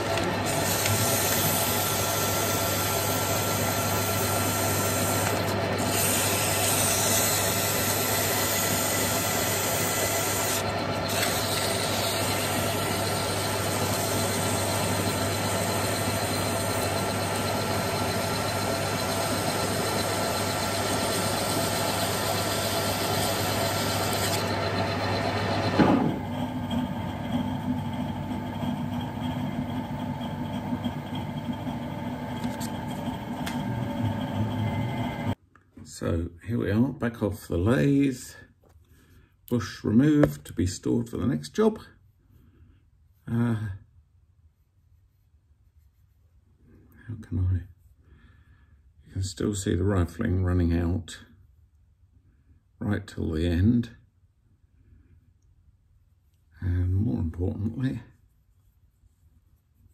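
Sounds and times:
metal lathe humming: 0:00.0 - 0:35.4
machine stopping with a knock: 0:25.4 - 0:35.3.

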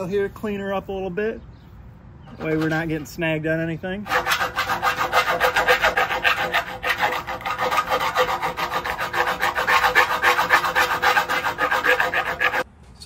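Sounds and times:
hand file rasping on metal: 0:04.0 - 0:12.7.

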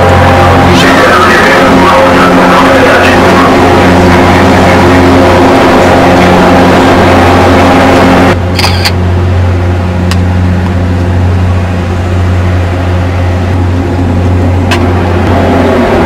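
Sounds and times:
low hum of ship machinery: 0:00.0 - 0:16.0.

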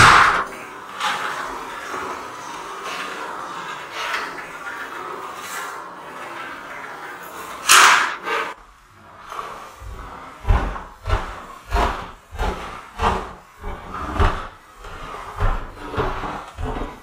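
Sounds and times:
footsteps climbing stairs: 0:00.0 - 0:00.6.

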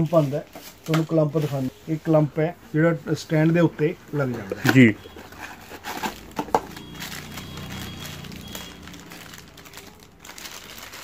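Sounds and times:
plastic bag crinkling: 0:04.7 - 0:11.0.

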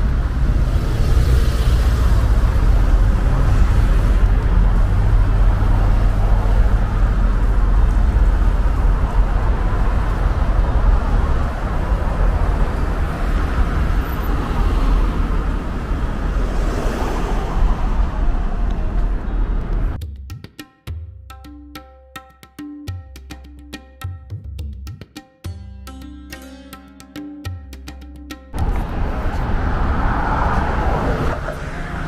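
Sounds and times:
road traffic noise: 0:00.0 - 0:20.0, 0:25.6 - 0:32.0
vehicle passing: 0:00.0 - 0:20.0, 0:28.6 - 0:32.0
plucked percussive music: 0:19.6 - 0:28.8.

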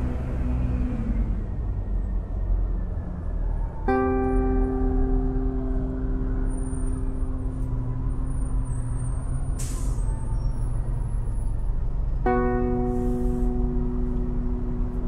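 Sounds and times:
road traffic rumbling: 0:00.0 - 0:15.0.

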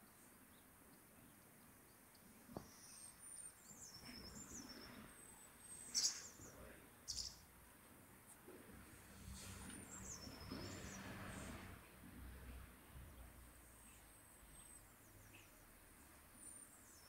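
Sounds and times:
songbird twittering: 0:01.2 - 0:07.4
short high bird calls: 0:05.8 - 0:06.5.

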